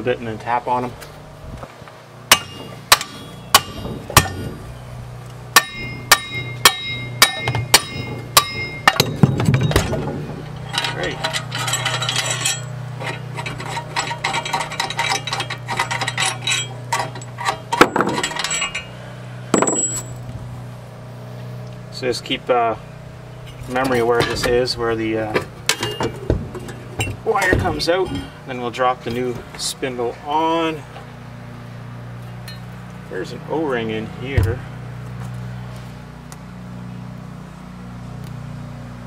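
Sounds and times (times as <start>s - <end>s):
hammer striking steel bolts: 2.3s - 4.4s, 5.6s - 18.9s
metal clinking and rattling: 5.6s - 20.2s.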